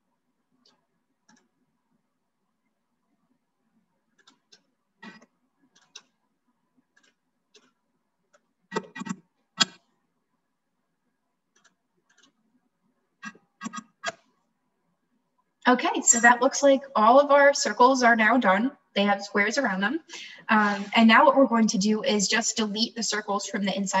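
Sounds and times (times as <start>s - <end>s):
mouse and keyboard clicks: 0.7s - 1.6s, 4.2s - 6.2s, 8.4s - 9.8s, 11.6s - 12.4s, 13.2s - 14.3s.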